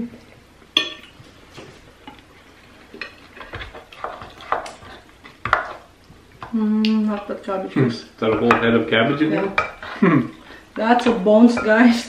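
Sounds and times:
ladle knocking and scraping bowl: 3.0s - 5.9s.

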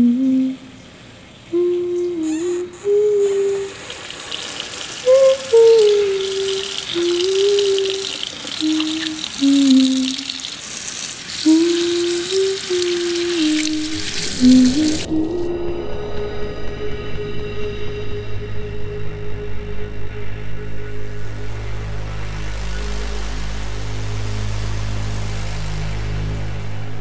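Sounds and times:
person humming: 0.0s - 0.8s, 1.5s - 4.2s, 5.0s - 10.5s, 11.4s - 17.7s
low drone: 0.0s - 4.0s, 11.5s - 27.0s
tap water running into sink: 3.8s - 15.1s.

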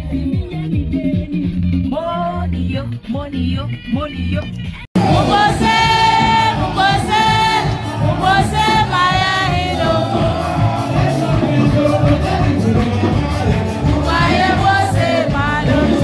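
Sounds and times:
congregation singing: 5.0s - 16.0s
worship band playing: 5.0s - 16.0s.

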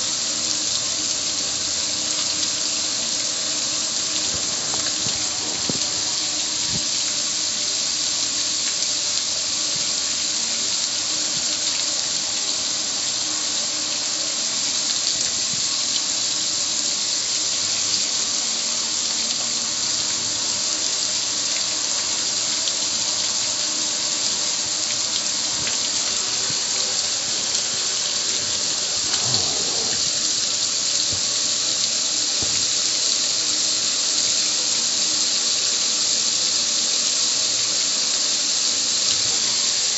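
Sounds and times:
water splashing off grill: 0.0s - 34.7s
hose spray hissing: 3.0s - 7.5s, 25.4s - 31.3s.

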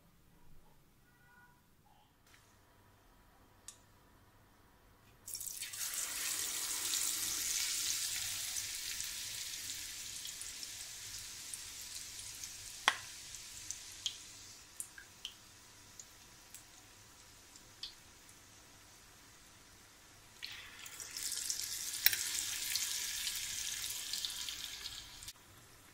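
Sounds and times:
batter sizzling in hot oil: 5.3s - 25.9s
oil pops and crackles: 12.8s - 13.1s.

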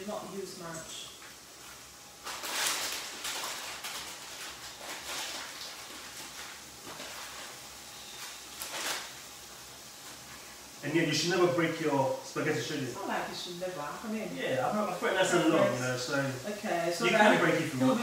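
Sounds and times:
plastic packet crinkling: 2.2s - 7.6s, 8.2s - 9.2s.

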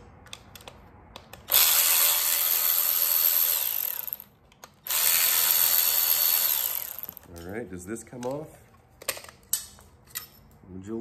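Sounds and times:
electric ratchet motor whine: 1.5s - 4.2s, 4.9s - 7.2s.

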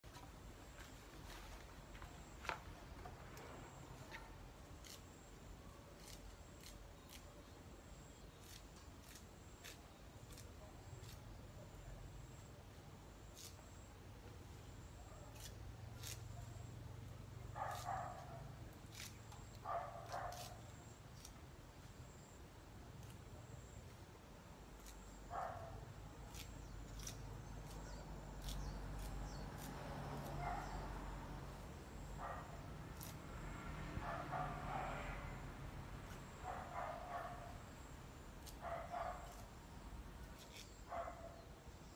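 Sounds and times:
faint dog barking: 17.4s - 20.7s, 25.3s - 26.4s, 30.2s - 31.3s, 32.2s - 35.6s, 36.2s - 37.7s, 38.4s - 39.5s, 40.5s - 41.6s.

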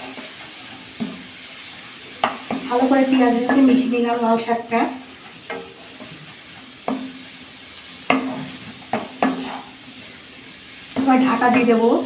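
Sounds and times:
greens sizzling in oil: 0.0s - 12.0s
spatula knocking on pan: 5.5s - 5.7s, 6.8s - 7.2s, 8.1s - 9.7s.

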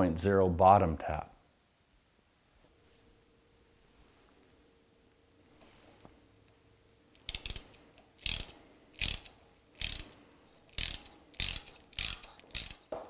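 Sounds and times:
ratchet clicking: 7.2s - 12.9s.

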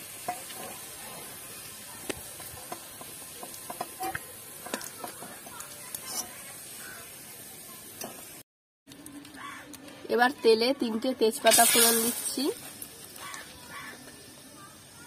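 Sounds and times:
oil sizzling in a pan: 0.0s - 8.4s, 11.3s - 15.0s
metal spatula scraping a pan: 2.6s - 6.9s.

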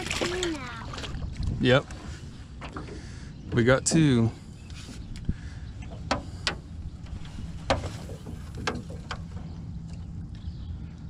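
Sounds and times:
steady low rumble: 0.0s - 11.0s
fishing gear clicking and knocking: 5.8s - 9.5s.

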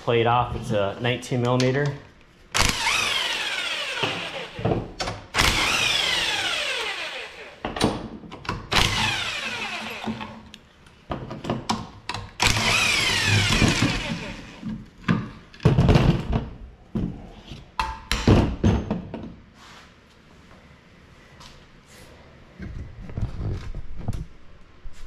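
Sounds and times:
impact wrench hammering: 2.6s - 7.1s.

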